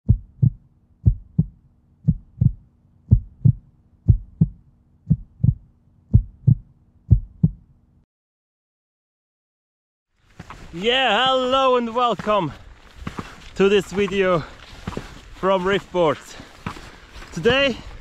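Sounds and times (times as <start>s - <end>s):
heartbeat thumps: 0.0s - 7.7s, 12.8s - 15.5s, 16.4s - 18.0s.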